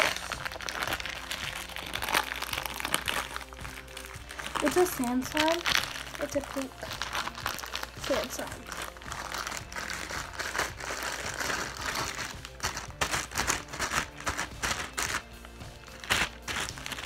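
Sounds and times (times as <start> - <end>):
background music: 0.0 - 17.0
slime crackling and popping: 0.0 - 17.0.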